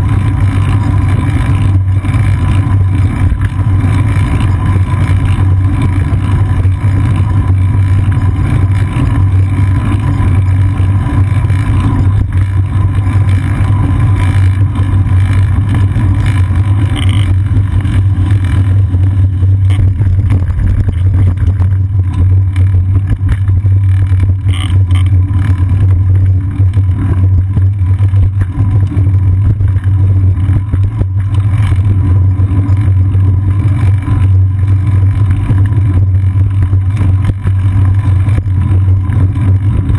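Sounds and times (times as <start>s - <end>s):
bicycle road vibration rumble: 0.0s - 39.9s
wind on microphone: 16.5s - 25.3s.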